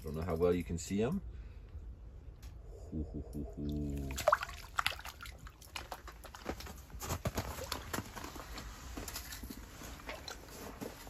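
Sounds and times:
fish splashing in water: 4.0 - 6.4.

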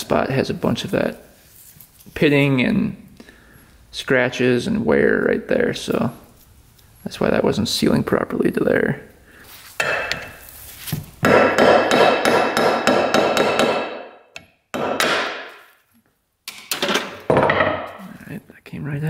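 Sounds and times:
hammer striking metal: 9.8 - 10.4, 11.2 - 15.6.

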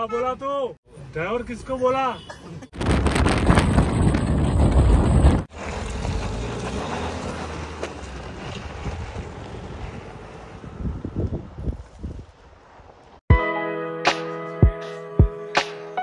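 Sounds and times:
tyres on dirt track: 0.0 - 13.2
wind rushing over microphone: 2.8 - 6.5, 8.2 - 13.0
diesel engine: 4.4 - 11.2.

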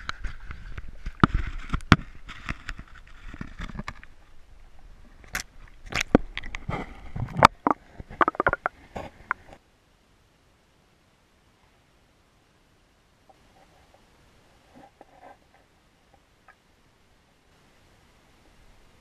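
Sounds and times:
knocks and scrapes on camera housing: 6.0 - 9.6.

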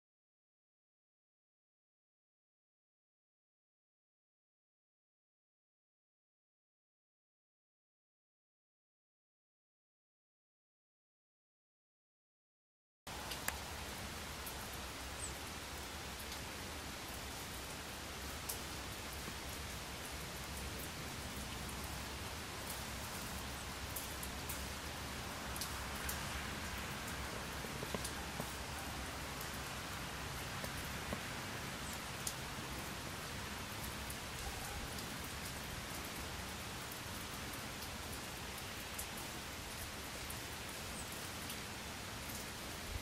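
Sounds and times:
rain hissing: 13.1 - 43.0.

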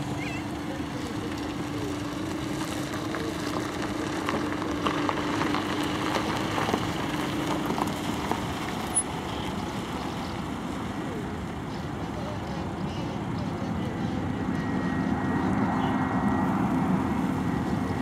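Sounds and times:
engine rumble: 0.0 - 18.0
low hum: 8.8 - 18.0.

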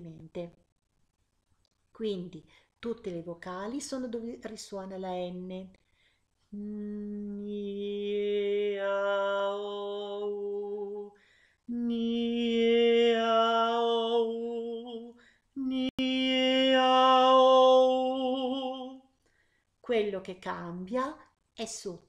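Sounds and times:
woman singing sustained tones: 6.6 - 19.0.

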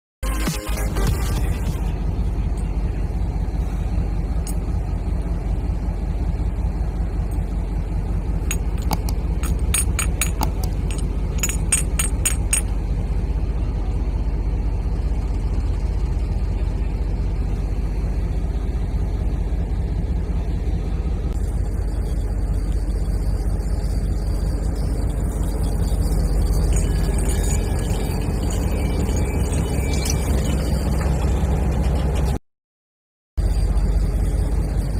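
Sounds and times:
steady low rumble: 1.0 - 32.4, 33.4 - 34.9.

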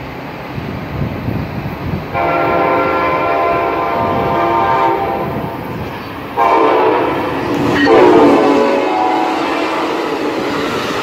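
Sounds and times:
low rumble of train: 0.0 - 11.0
train air horn blasts: 2.1 - 5.5, 6.4 - 10.4.

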